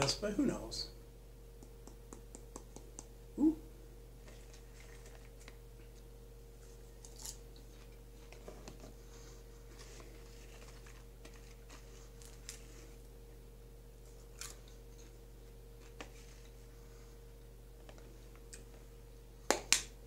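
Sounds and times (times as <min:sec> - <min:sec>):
plastic shaker clicks and taps: 0:01.6 - 0:03.1
popcorn being chewed: 0:04.2 - 0:09.0, 0:09.6 - 0:13.2, 0:14.0 - 0:16.6, 0:17.8 - 0:18.8.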